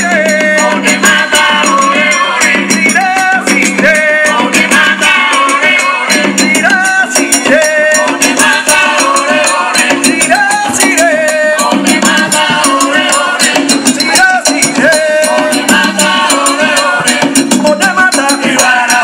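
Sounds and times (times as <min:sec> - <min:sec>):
shaker beat: 0:00.0 - 0:19.0
upbeat latin-style music: 0:00.0 - 0:19.0
sliding melody line: 0:00.1 - 0:19.0.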